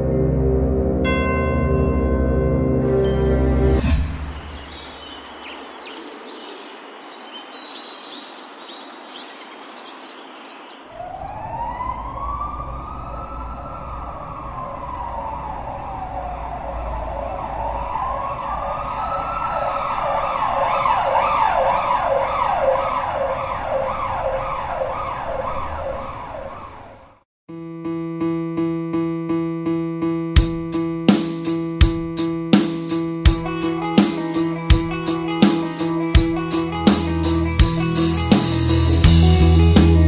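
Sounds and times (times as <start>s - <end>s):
emergency vehicle siren: 10.9s - 27.2s
low vehicle rumble: 11.0s - 21.5s.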